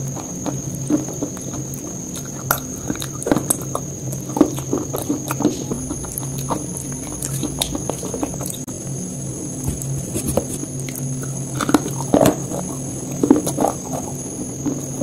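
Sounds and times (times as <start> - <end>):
crackling clicks of food: 0.0 - 8.7, 9.6 - 15.0
mouth chewing: 0.0 - 8.7, 9.6 - 15.0
steady high whine: 0.0 - 15.0
low hum: 4.0 - 14.4.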